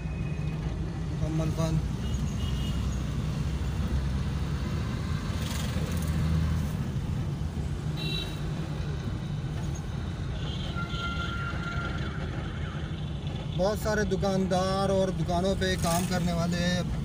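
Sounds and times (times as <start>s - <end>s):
car engine and road noise: 0.0s - 17.0s
passing street traffic: 0.0s - 17.0s.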